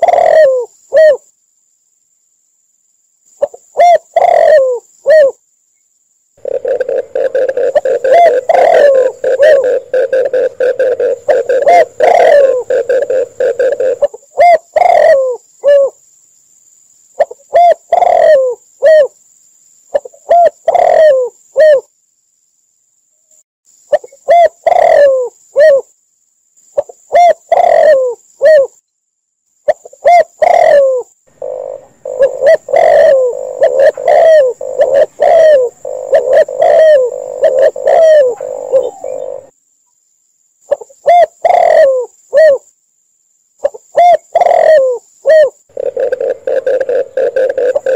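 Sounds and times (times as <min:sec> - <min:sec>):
doves cooing: 0:00.0 - 0:01.2, 0:03.8 - 0:05.4, 0:06.4 - 0:15.9, 0:17.2 - 0:19.1, 0:20.0 - 0:21.8, 0:24.3 - 0:25.8, 0:27.1 - 0:28.7, 0:30.0 - 0:39.5, 0:41.1 - 0:42.6, 0:44.0 - 0:47.9.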